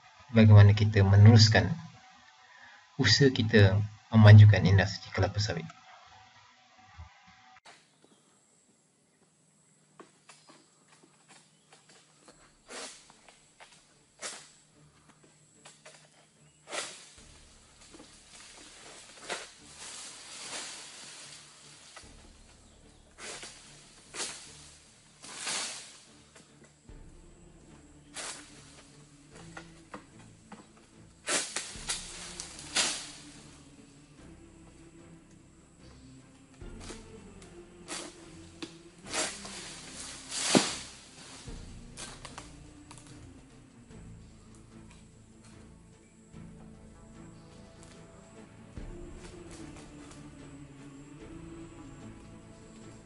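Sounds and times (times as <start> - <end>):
harvesting pole scraping palm fronds: 11.4 - 14.7, 15.6 - 43.5, 47.3 - 53.0
rush through leaves: 12.6 - 13.2, 16.7 - 26.3, 27.2 - 29.7, 31.2 - 34.3, 36.6 - 43.1.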